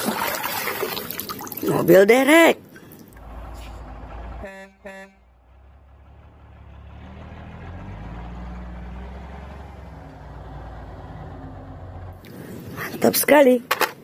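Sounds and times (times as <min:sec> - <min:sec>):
diesel engine rumbling: 0:01.9 - 0:13.6
horn toots: 0:03.6 - 0:05.4.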